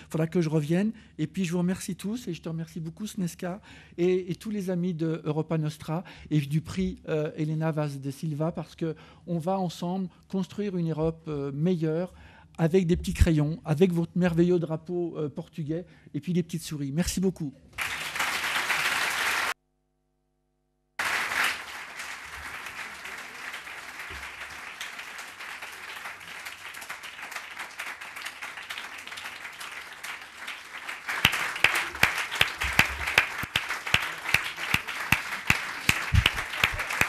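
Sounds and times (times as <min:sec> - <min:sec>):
audience applauding: 0:17.8 - 0:19.6, 0:21.0 - 0:37.0
close hand claps: 0:17.8 - 0:19.6, 0:21.0 - 0:37.0.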